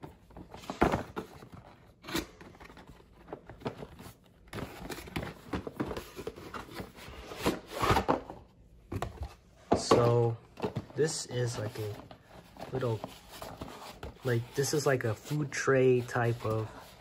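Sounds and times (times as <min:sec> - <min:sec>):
cardboard sliding and rubbing: 0:11.4 - 0:17.0.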